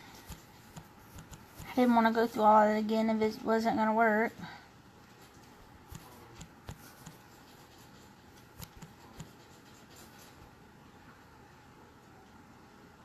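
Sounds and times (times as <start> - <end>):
faint clicks and taps: 0.0 - 1.9, 5.2 - 9.8
low room hiss: 0.0 - 13.0.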